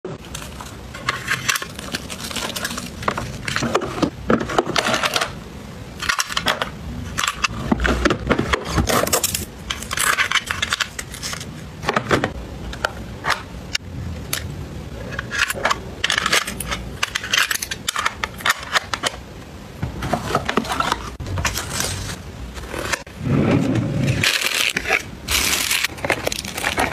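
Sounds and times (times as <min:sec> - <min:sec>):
paper sachets rustling: 0:00.2 - 0:03.8, 0:24.2 - 0:26.9.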